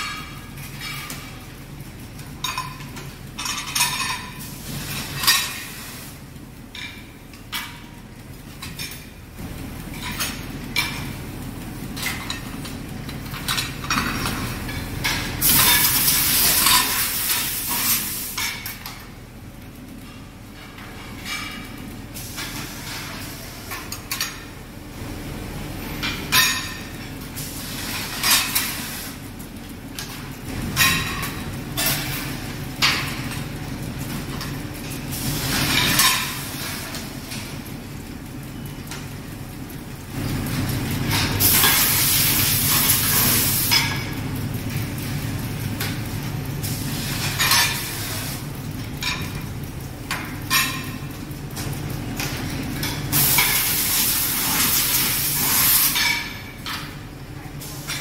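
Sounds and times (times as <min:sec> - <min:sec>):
steady machine hum: 0:00.0 - 0:58.0.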